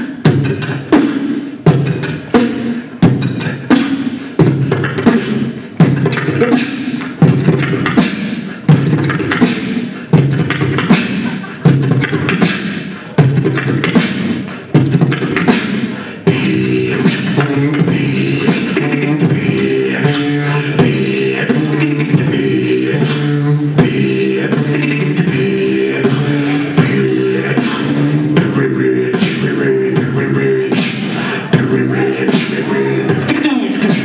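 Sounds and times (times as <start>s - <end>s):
beatboxing drum hits and clicks: 0.0s - 34.0s
pitched vocal line: 0.0s - 34.0s.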